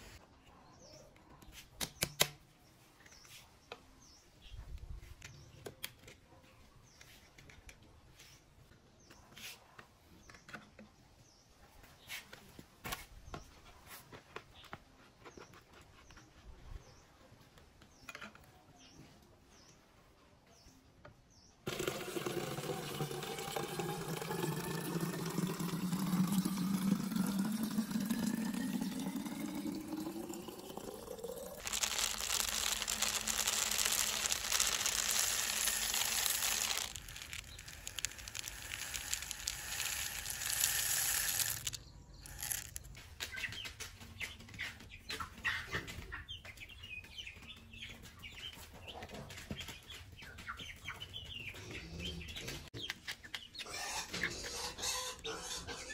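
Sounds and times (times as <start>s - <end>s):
water filling plastic bottle: 21.7s - 42.9s.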